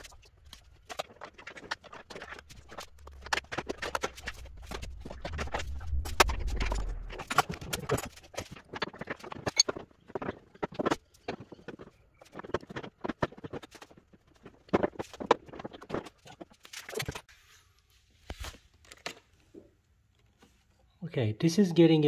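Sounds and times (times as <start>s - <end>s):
low rumble: 2.8s - 7.9s.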